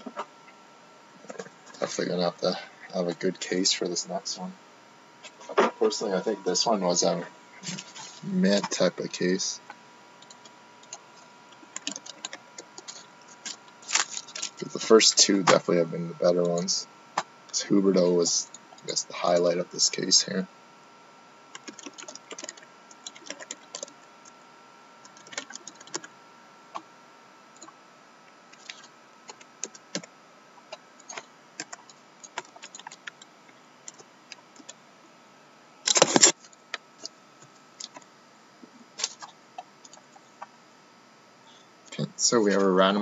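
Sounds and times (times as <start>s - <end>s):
computer keyboard typing: 10.2s - 11.0s, 11.6s - 14.7s, 21.5s - 24.0s, 25.0s - 26.1s, 28.5s - 30.1s, 30.7s - 34.8s, 37.8s - 38.1s.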